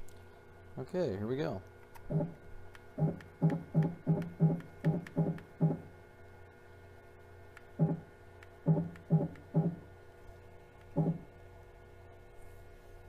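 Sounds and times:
mill spindle running: 0:02.0 - 0:06.0, 0:07.7 - 0:10.0, 0:10.8 - 0:11.4
stepper motor tones: 0:07.7 - 0:10.0, 0:10.9 - 0:11.4.

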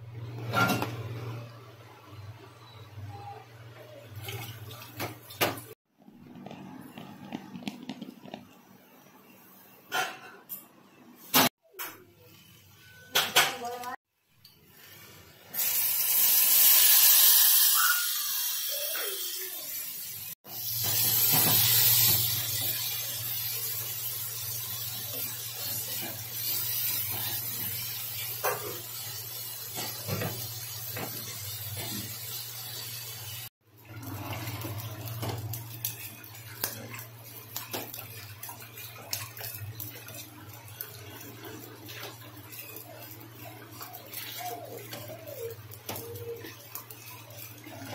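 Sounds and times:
fish sizzling in hot oil: 0:14.7 - 0:47.9.

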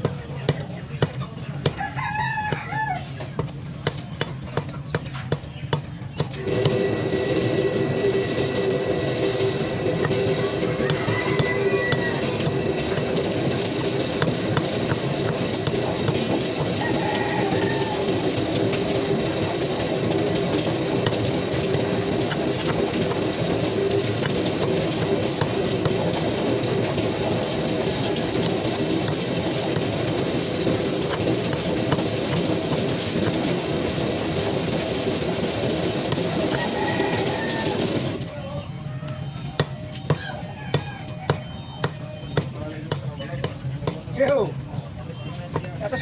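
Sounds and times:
chickens clucking: 0:00.0 - 0:06.4, 0:08.2 - 0:32.4, 0:35.8 - 0:42.1
rooster crowing: 0:01.7 - 0:03.2, 0:10.1 - 0:13.2, 0:16.6 - 0:18.4, 0:36.4 - 0:38.1, 0:38.8 - 0:41.6
steady rumbling din: 0:06.2 - 0:46.0.

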